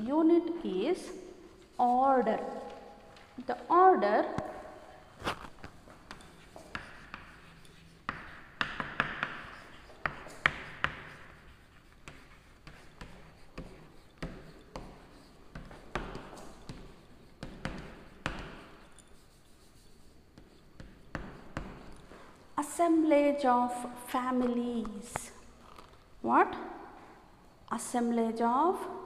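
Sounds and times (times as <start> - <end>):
chalk scratching on a chalkboard: 5.8 - 22.4
chalk tapping on a chalkboard: 5.9 - 22.2.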